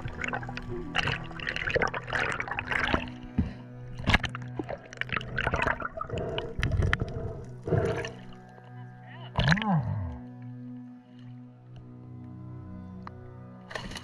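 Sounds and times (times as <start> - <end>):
water splashing: 0.0 - 8.5
droning background music: 0.0 - 14.0.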